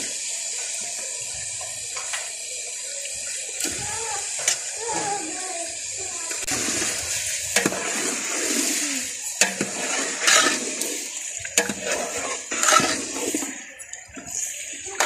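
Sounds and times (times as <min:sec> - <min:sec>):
chicken frying in a pot: 0:00.0 - 0:15.0
steel ladle scraping a pot: 0:07.6 - 0:13.8.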